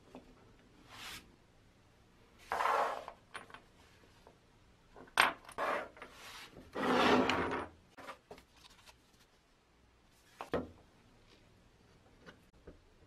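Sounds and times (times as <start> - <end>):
board scraping on workbench: 2.5 - 3.1, 5.6 - 7.6.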